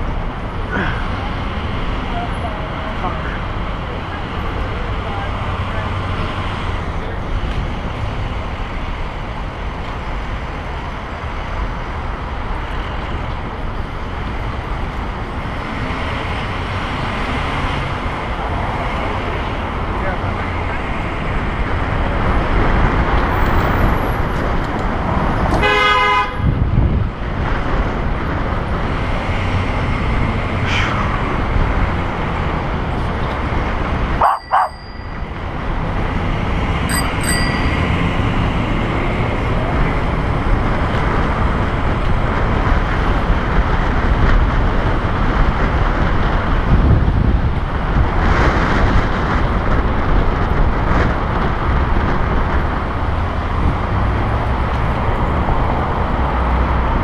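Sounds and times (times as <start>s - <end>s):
city traffic noise: 0.0s - 57.0s
vehicle horn honking: 25.6s - 26.4s
wind on microphone: 26.3s - 57.0s.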